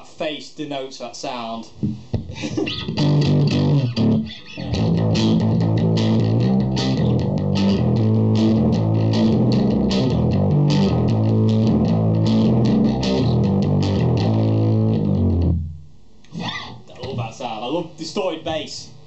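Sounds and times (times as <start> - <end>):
distorted bass guitar riff: 2.7 - 17.3.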